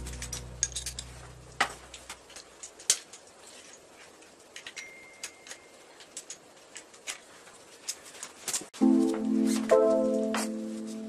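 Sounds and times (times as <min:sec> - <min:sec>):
hand tool clicking on metal parts: 0:00.0 - 0:08.7.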